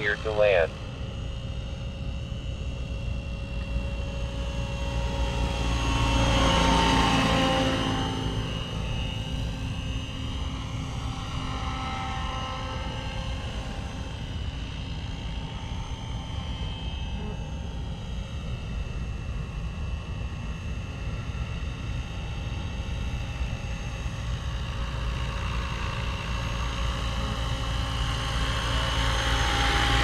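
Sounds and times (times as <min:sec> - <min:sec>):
rc helicopter rotor: 0:00.0 - 0:30.0.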